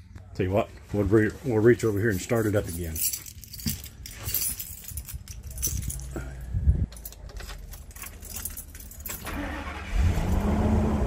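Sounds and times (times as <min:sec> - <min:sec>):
keys jangling in ignition: 0:02.4 - 0:10.5
engine cranking and starting: 0:09.1 - 0:11.0.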